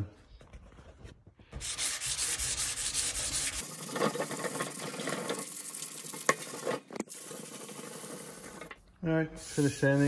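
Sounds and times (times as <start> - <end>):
sanding block scraping metal: 1.6 - 4.6.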